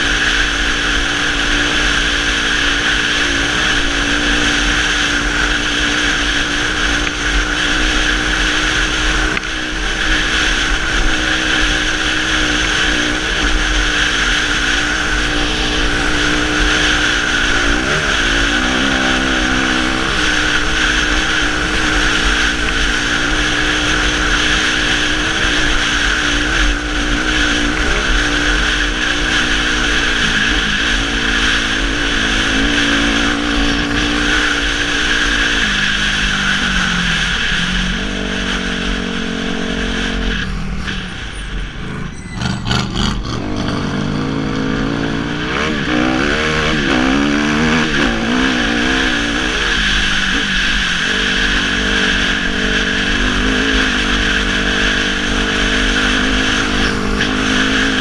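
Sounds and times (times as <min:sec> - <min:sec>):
motorcycle engine running hard: 0:00.0 - 0:58.0.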